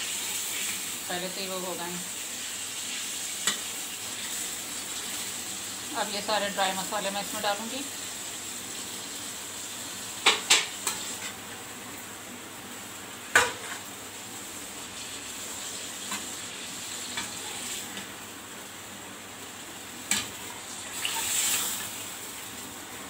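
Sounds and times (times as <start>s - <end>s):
chicken sizzling in a pan: 0.0s - 23.0s
metal spoon clanking on pan: 10.2s - 11.0s, 20.1s - 20.3s.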